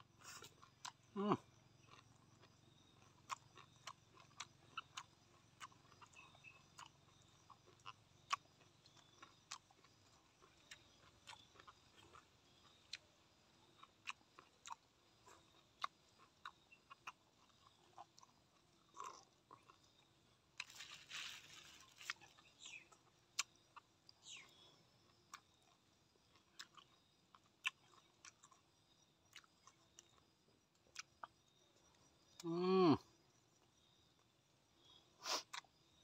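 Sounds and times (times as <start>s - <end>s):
man chewing food: 0.0s - 36.0s.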